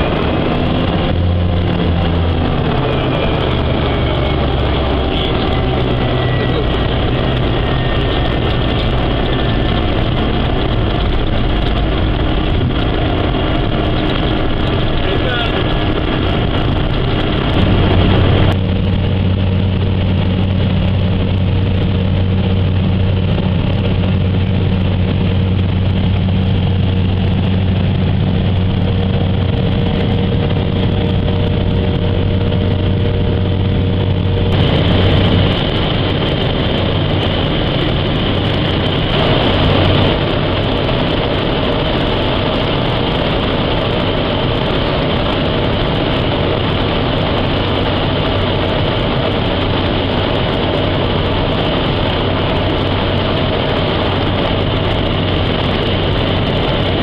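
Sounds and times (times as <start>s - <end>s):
propeller aircraft engine droning: 0.0s - 57.0s.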